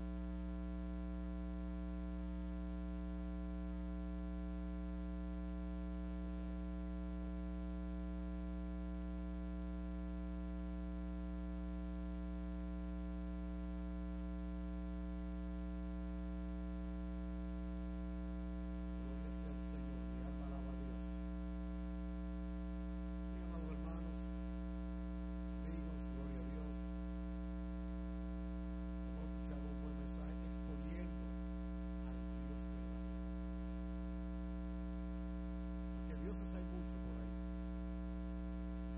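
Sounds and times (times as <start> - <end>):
electrical mains hum: 0.0 - 38.9
faint indistinct speech: 23.4 - 24.3, 25.6 - 26.9, 29.2 - 31.2, 36.0 - 37.4.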